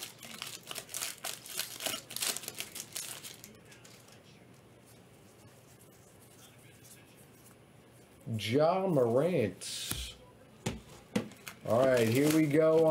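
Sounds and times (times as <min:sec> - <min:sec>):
foil wrapper crinkling: 0:00.0 - 0:04.2, 0:11.3 - 0:12.9.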